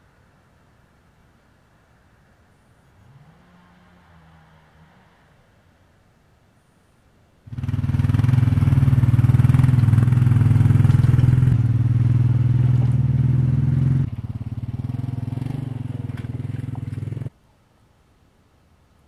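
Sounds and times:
small tractor engine running: 7.5s - 17.3s.

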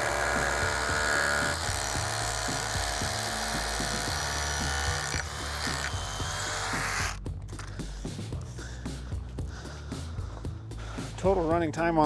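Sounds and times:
cordless drill whining: 0.0s - 7.7s
background music with a beat: 0.3s - 12.0s.

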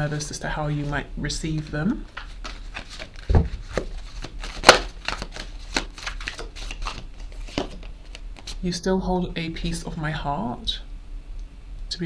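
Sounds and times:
cards being shuffled: 0.7s - 8.6s.

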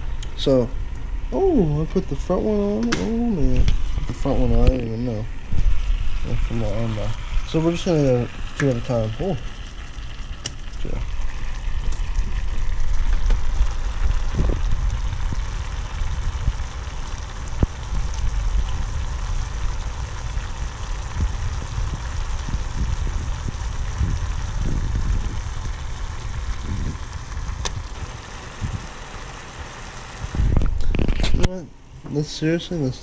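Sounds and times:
low rumble: 0.0s - 28.9s
water bubbling in saucepan: 5.3s - 31.0s.

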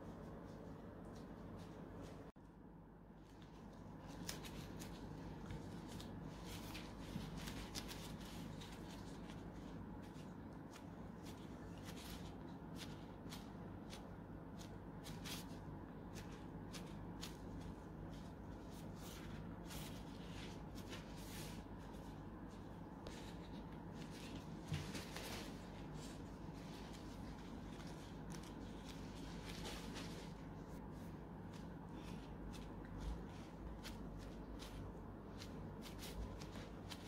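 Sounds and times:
steady low hum: 0.0s - 37.0s
plastic gloves crinkling: 3.1s - 37.0s.

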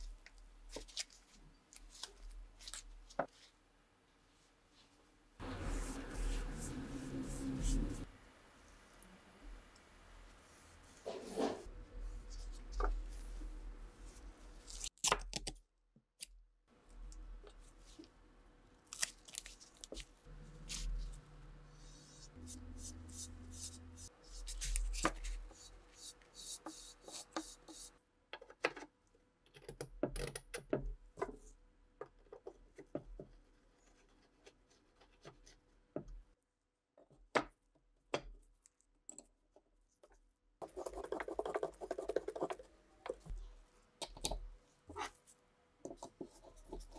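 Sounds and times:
brush strokes on wood: 5.4s - 9.0s, 10.2s - 14.6s.

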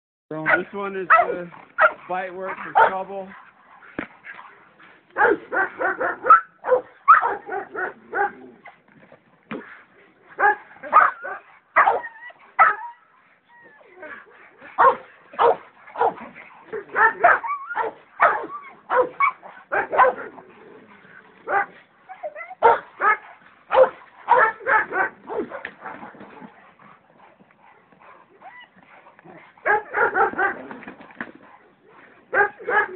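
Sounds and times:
dog barking: 0.4s - 2.0s, 2.7s - 3.0s, 5.2s - 8.4s, 10.4s - 12.8s, 14.8s - 16.2s, 16.8s - 20.3s, 21.5s - 21.7s, 22.6s - 26.0s, 29.6s - 30.6s, 32.3s - 32.9s.

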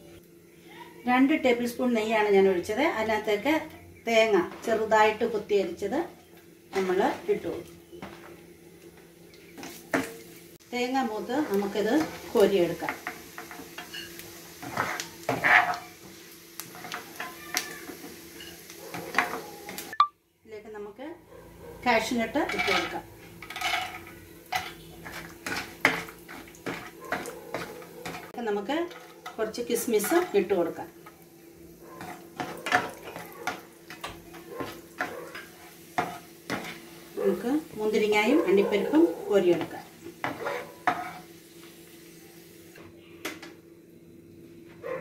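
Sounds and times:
food sizzling in hot oil: 0.0s - 20.1s, 21.8s - 42.8s
ladle scraping and knocking a pan: 11.4s - 15.9s, 22.5s - 30.4s.

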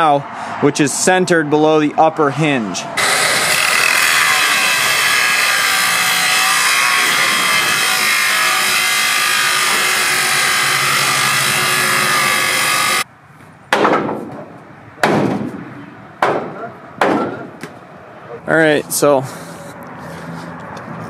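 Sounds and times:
angle grinder grinding steel: 3.0s - 13.0s
sharp knocks: 13.7s - 15.6s, 16.2s - 17.8s.

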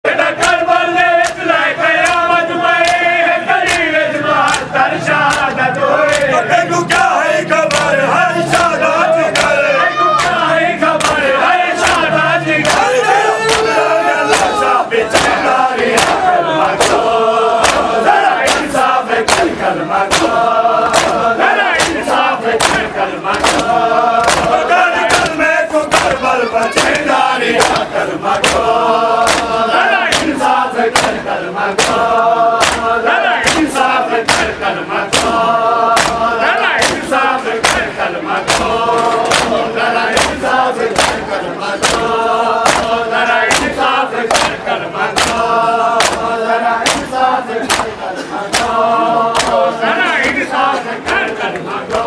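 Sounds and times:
men chanting in unison: 0.0s - 52.0s
hands slapping bare chests: 1.2s - 5.5s, 7.7s - 8.7s, 9.3s - 9.6s, 11.0s - 11.2s, 13.5s - 16.2s, 16.8s - 21.2s, 21.8s - 31.2s, 31.8s - 32.0s, 32.6s - 36.2s, 36.8s - 44.6s, 45.2s - 45.4s, 46.0s - 49.6s.

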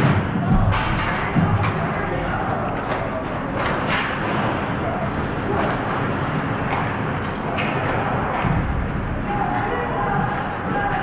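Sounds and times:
hockey sticks clacking: 0.5s - 4.9s, 5.5s - 8.7s.

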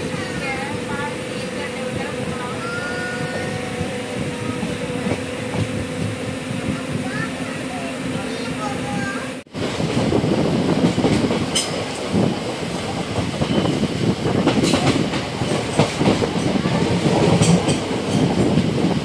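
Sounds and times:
train rumbling on rails: 0.0s - 19.0s
wheels clacking over rail joints: 10.8s - 18.9s.

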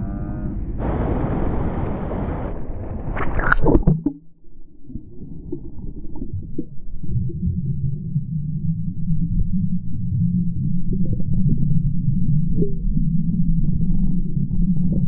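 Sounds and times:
muffled underwater rumble: 0.0s - 15.0s
shallow surf washing: 0.8s - 3.6s
splash: 0.8s - 4.2s.

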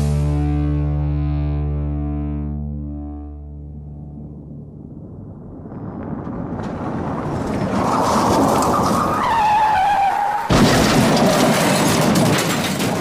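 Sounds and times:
rumbling noise: 3.6s - 9.4s
loud car crash: 6.2s - 13.0s.

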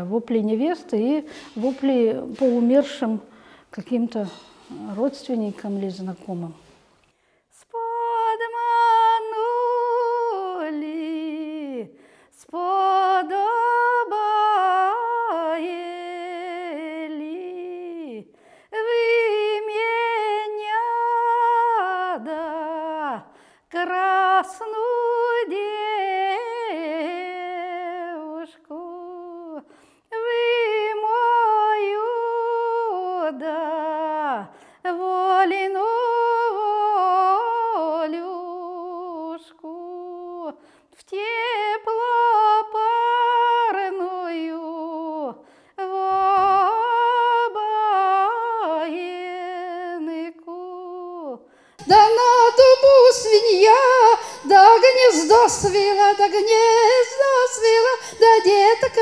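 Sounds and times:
woman singing unaccompanied lament: 0.0s - 6.7s, 7.6s - 59.0s
woman's voice through microphone: 0.0s - 6.7s.

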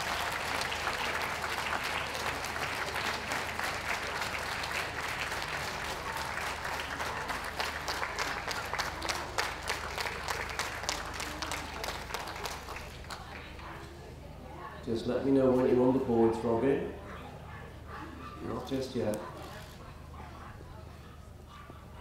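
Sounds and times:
crowd applauding: 0.0s - 13.7s.

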